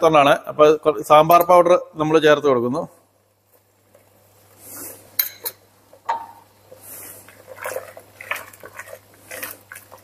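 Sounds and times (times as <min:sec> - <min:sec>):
spoon stirring thick stew: 0:06.7 - 0:10.0.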